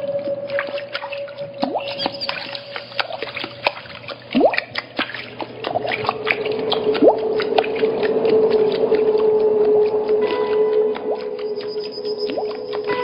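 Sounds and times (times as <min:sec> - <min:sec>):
long held low tone: 0:00.0 - 0:03.8, 0:06.7 - 0:13.0
whale-like swooping calls: 0:00.0 - 0:04.6, 0:05.6 - 0:13.0
watery clicks and drips: 0:00.0 - 0:13.0.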